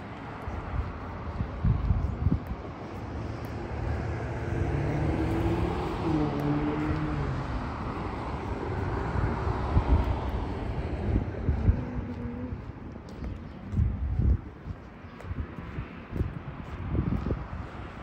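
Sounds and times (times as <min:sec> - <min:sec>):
engine rumble passing by: 0:00.6 - 0:14.4.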